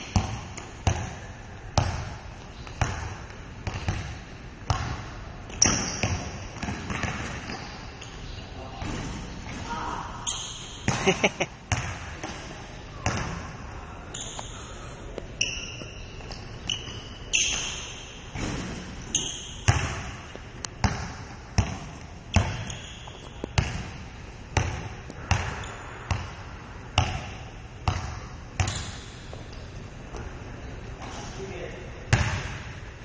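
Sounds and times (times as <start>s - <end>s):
basketball bouncing on wooden court: 0.0s - 8.1s, 10.6s - 12.4s, 13.0s - 13.5s, 15.7s - 29.5s, 32.1s - 32.7s
short high squeaks: 10.2s - 10.8s, 14.1s - 14.8s, 15.4s - 18.0s, 19.0s - 19.6s, 22.6s - 23.4s.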